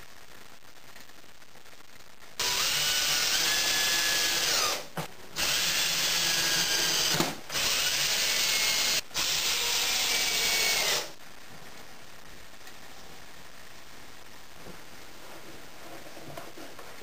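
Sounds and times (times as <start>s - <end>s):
cordless drill drilling into plywood: 2.4s - 4.8s, 5.4s - 11.1s.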